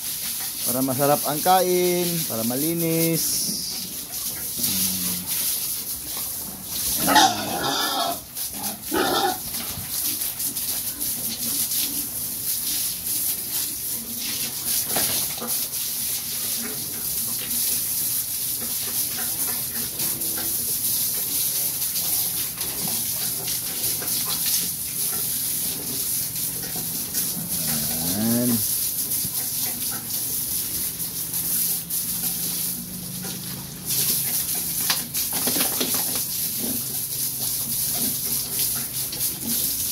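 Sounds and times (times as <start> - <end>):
running water hiss: 0.0 - 39.9
pig grunting: 4.5 - 5.6, 7.0 - 9.5, 26.6 - 28.8
pigs squealing: 6.9 - 9.5, 27.0 - 28.8.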